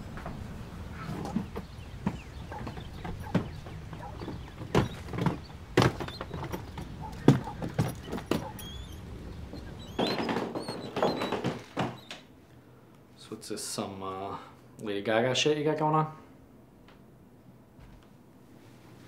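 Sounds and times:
footsteps: 0:00.0 - 0:12.2
scraping rattle: 0:00.9 - 0:12.1
door knocks and thuds: 0:01.1 - 0:12.2.

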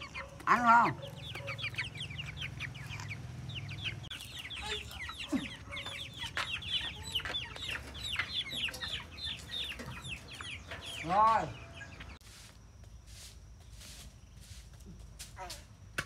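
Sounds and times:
chickens calling: 0:00.0 - 0:12.5.

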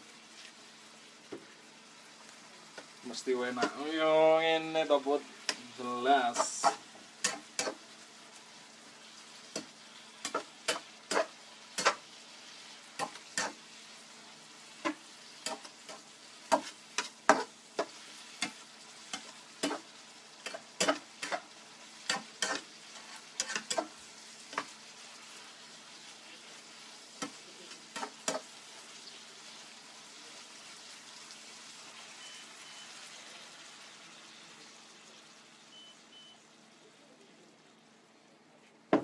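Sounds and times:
faint sizzle in pan: 0:00.0 - 0:39.0
spatula scraping frying pan: 0:06.2 - 0:07.8, 0:09.4 - 0:13.7, 0:14.8 - 0:25.5, 0:27.2 - 0:28.7.

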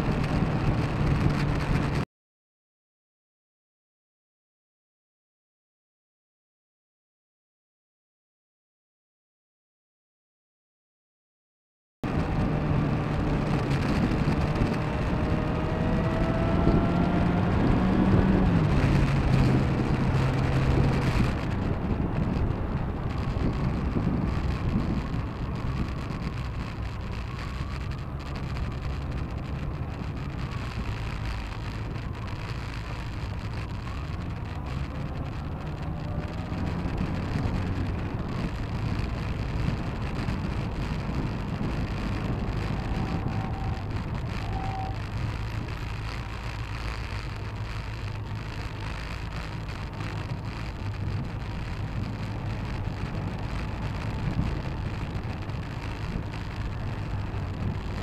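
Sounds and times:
road and wind noise: 0:00.0 - 0:02.1, 0:12.0 - 0:58.0
vehicle engine running: 0:12.1 - 0:58.0.

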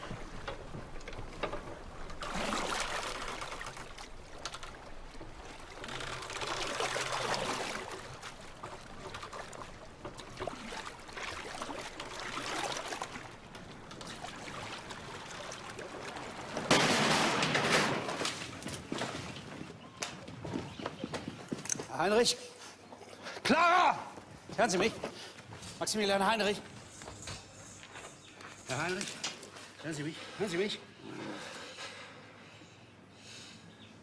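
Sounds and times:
water lapping around boat: 0:00.0 - 0:25.8.

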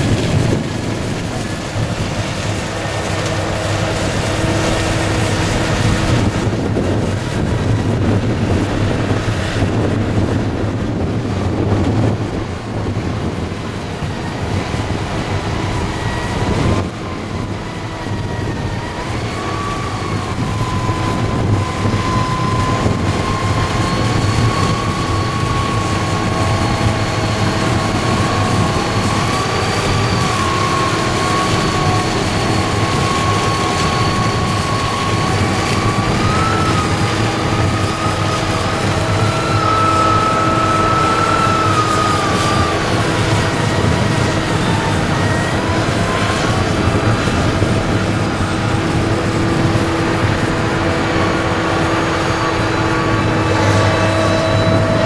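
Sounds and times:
forage harvester machinery drone: 0:00.0 - 0:55.0.

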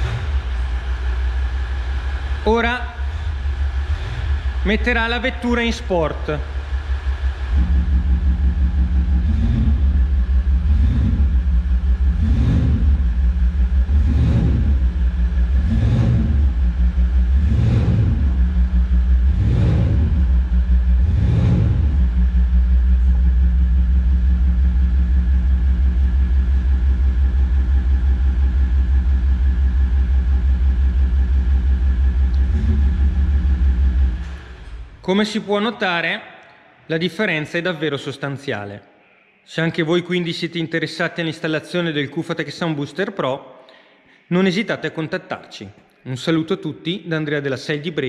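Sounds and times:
engine idling with revving blips: 0:00.0 - 0:35.0.

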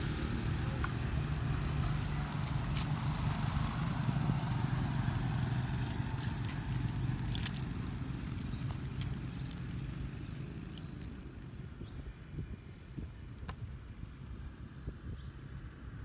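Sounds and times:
motor engine droning: 0:00.0 - 0:12.1.

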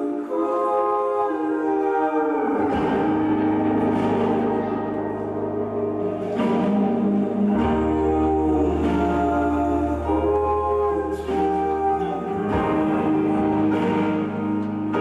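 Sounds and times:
slow instrumental music: 0:00.0 - 0:15.0
deep bass note: 0:02.7 - 0:11.4.

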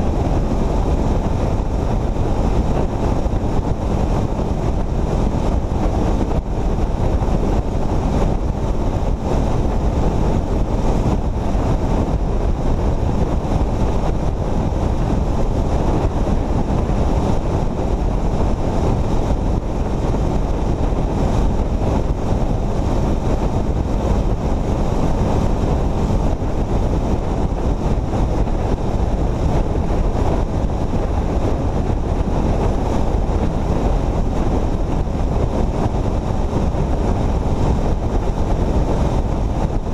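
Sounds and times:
vehicle and tyre rumble: 0:00.0 - 0:39.9
wind rushing over microphone: 0:00.0 - 0:39.9.

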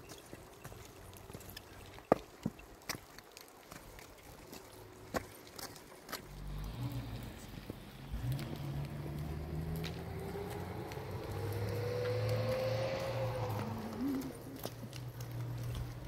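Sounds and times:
footsteps on gravel: 0:00.0 - 0:06.7, 0:07.6 - 0:16.0
cart wheels on gravel: 0:00.0 - 0:16.0
low engine rumble: 0:06.2 - 0:16.0.

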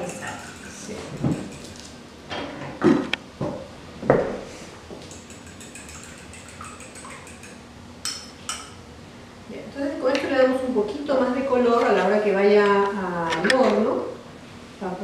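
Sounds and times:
fork knocking glass bowl: 0:00.0 - 0:01.8, 0:05.1 - 0:08.8.

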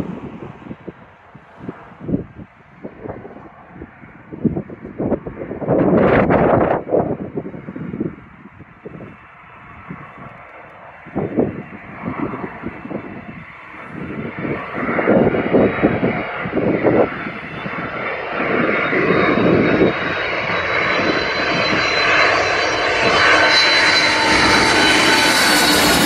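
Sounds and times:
jet engines roaring: 0:00.0 - 0:26.0
high engine whine: 0:08.9 - 0:26.0.

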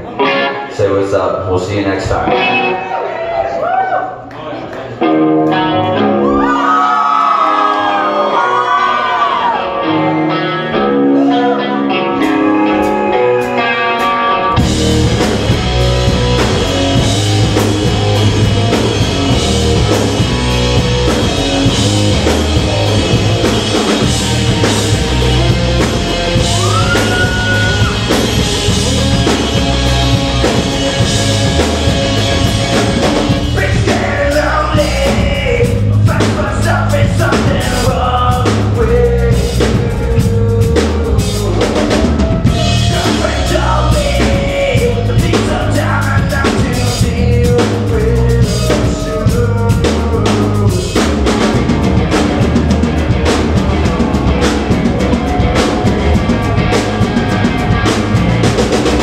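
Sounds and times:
distorted electric guitar: 0:00.0 - 0:03.0, 0:05.0 - 0:59.0
bass guitar: 0:00.0 - 0:04.3, 0:04.9 - 0:59.0
drum kit: 0:12.2 - 0:59.0.

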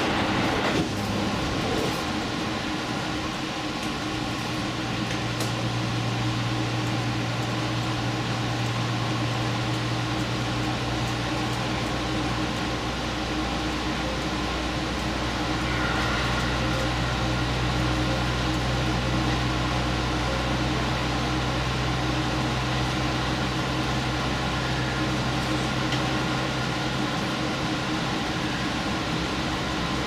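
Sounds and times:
train engine drone: 0:00.0 - 0:30.0
train rolling noise: 0:00.0 - 0:30.0.

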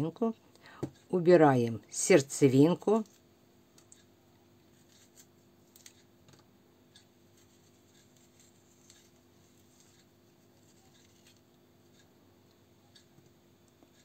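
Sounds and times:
low steady hum: 0:00.0 - 0:14.0
soft clicks and scratches: 0:04.7 - 0:14.0.

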